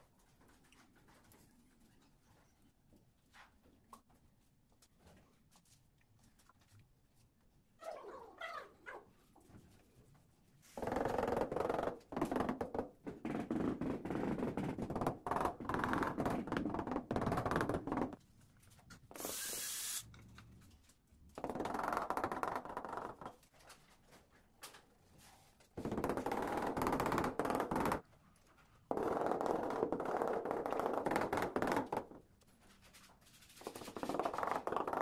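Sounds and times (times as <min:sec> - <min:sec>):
short hiss: 0:19.2 - 0:20.0.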